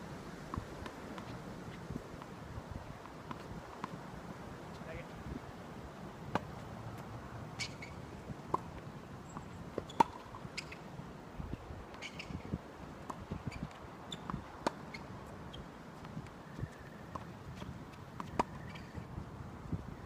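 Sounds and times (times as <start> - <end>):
tennis ball bouncing: 6.2 - 6.6, 7.6 - 10.9, 13.1 - 15.0, 17.1 - 19.0
racket hitting tennis ball: 9.8 - 10.3.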